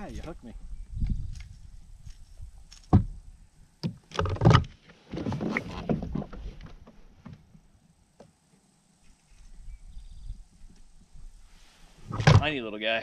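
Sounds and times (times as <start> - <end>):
knocks and bumps on kayak: 2.9 - 3.2, 3.8 - 7.6.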